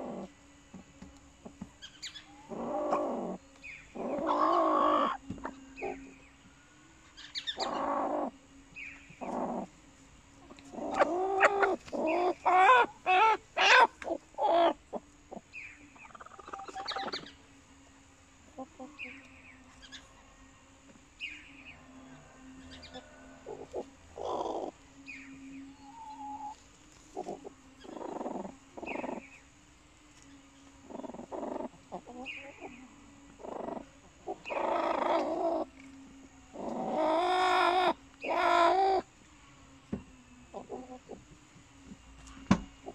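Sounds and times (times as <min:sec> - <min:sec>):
hens drawn-out calls: 0:02.2 - 0:06.0, 0:07.5 - 0:08.3, 0:10.5 - 0:17.2, 0:21.6 - 0:24.8, 0:30.8 - 0:35.7, 0:36.5 - 0:39.1
hens clucking: 0:02.3 - 0:06.0, 0:07.5 - 0:08.3, 0:10.4 - 0:17.3, 0:22.7 - 0:24.8, 0:25.8 - 0:29.3, 0:30.9 - 0:35.7, 0:36.5 - 0:39.0, 0:40.5 - 0:41.3.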